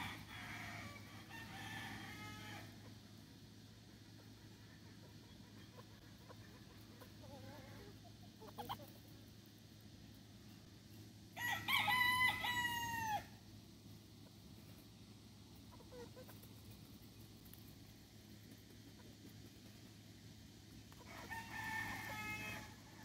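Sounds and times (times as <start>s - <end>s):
rooster crowing: 0.0s - 2.8s, 11.4s - 13.4s, 21.0s - 23.0s
soft clucks: 4.1s - 9.3s.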